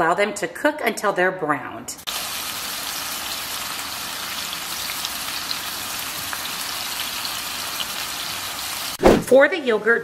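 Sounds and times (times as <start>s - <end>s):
meatballs sizzling in a skillet: 2.1s - 9.0s.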